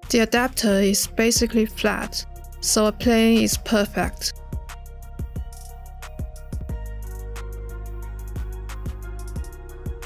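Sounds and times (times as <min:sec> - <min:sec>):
background music with drum beat: 0:00.0 - 0:10.0.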